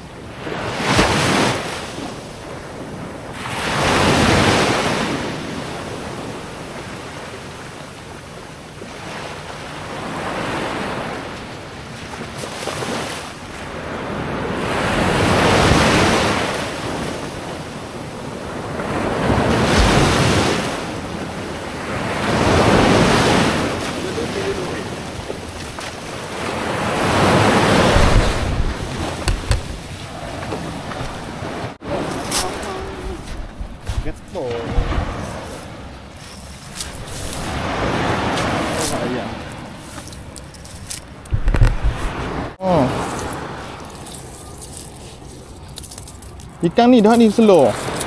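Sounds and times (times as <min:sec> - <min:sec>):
waves washing onto rocky shore: 0:08.7 - 0:36.0, 0:36.7 - 0:40.3, 0:41.3 - 0:44.9.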